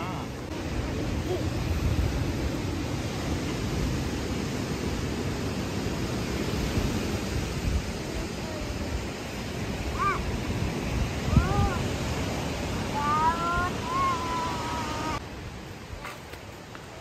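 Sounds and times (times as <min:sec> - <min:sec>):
sea surf rushing: 0:00.0 - 0:17.0.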